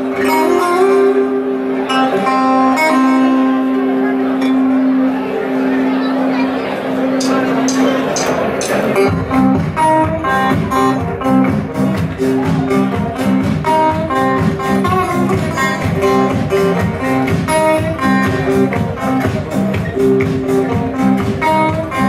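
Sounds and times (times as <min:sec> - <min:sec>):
acoustic guitar riff: 0:00.0 - 0:22.0
drums steady beat: 0:07.2 - 0:22.0.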